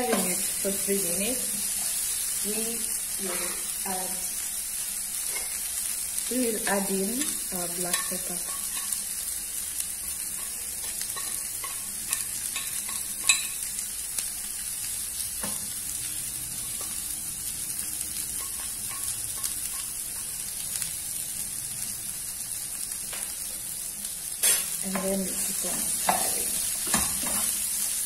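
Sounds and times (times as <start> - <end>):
vegetables sizzling in oil: 0.0 - 28.0
spatula scraping and tapping pan: 6.6 - 9.0, 10.0 - 13.7, 18.3 - 20.3, 24.4 - 27.6.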